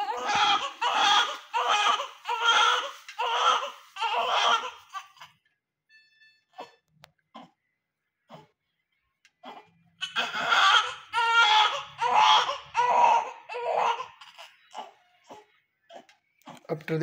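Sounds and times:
newborn baby crying: 0.0 - 5.4, 9.4 - 16.7.

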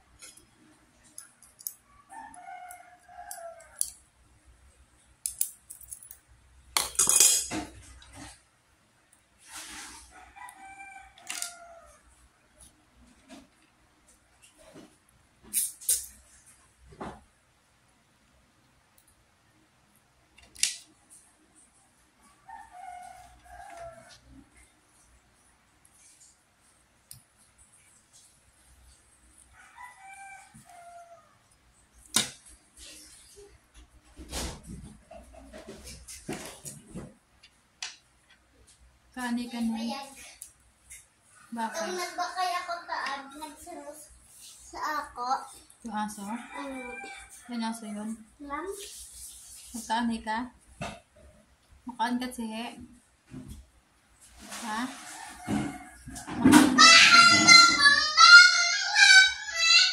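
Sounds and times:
metal utensil clicking on shells: 5.2 - 6.2
rooster crowing: 29.6 - 31.4, 46.3 - 47.4.

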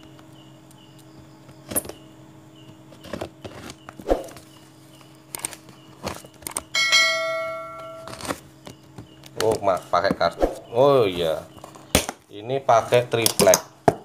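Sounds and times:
steady low hum: 0.0 - 13.8
bell-like chime: 6.8 - 8.2
packing tape being cut and torn: 8.0 - 8.4.

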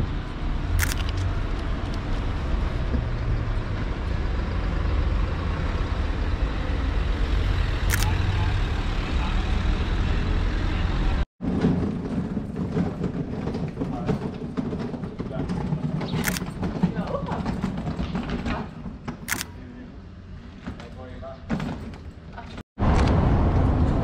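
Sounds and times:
engine rumbling: 0.0 - 24.0
street noise: 0.0 - 24.0
sharp click: 19.2 - 19.6.

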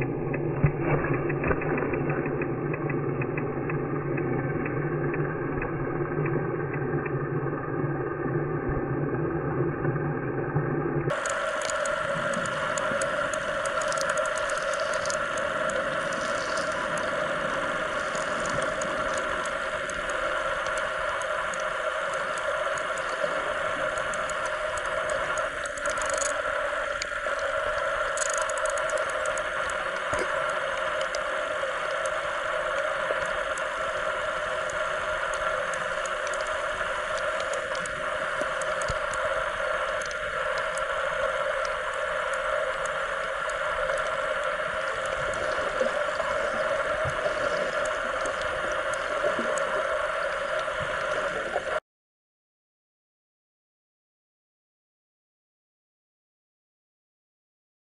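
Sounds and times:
underwater hum: 0.0 - 51.8
faint ticks and crackling: 11.1 - 51.8.

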